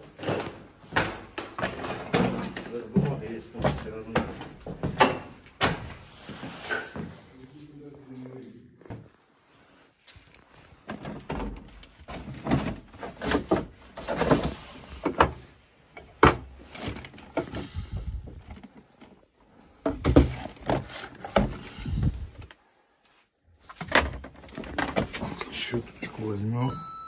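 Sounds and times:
knocks and clatter of junk: 0:00.0 - 0:07.2, 0:10.5 - 0:22.5, 0:23.6 - 0:25.7.

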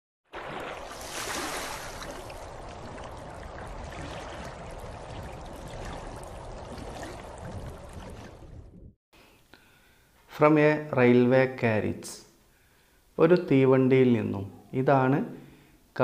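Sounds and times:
rushing water: 0:00.3 - 0:08.8.

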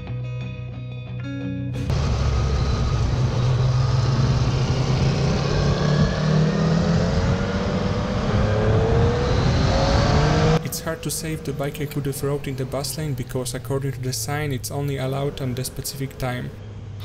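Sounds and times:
motorcycle engine running: 0:01.9 - 0:07.8
wind noise: 0:02.8 - 0:10.6.

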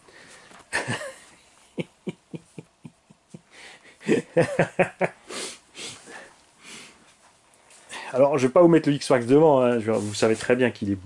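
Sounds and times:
man breathing: 0:00.0 - 0:00.6, 0:03.4 - 0:04.3, 0:05.2 - 0:08.2
man chuckling: 0:00.7 - 0:06.3.

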